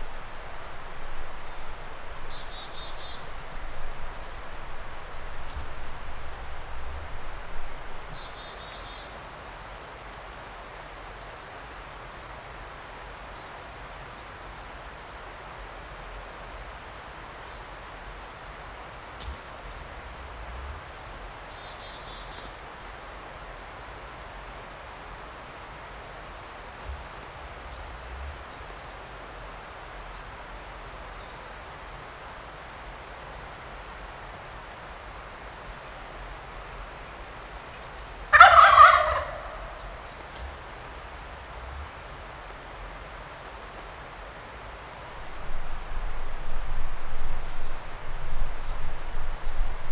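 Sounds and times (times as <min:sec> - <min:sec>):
songbird twittering: 0:00.0 - 0:05.5, 0:37.4 - 0:41.5
steady background hiss: 0:00.0 - 0:49.9.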